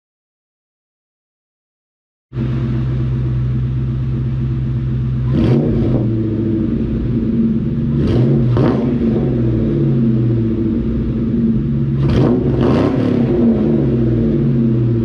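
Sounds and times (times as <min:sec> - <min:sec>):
car engine idling and revving: 0:02.4 - 0:15.0.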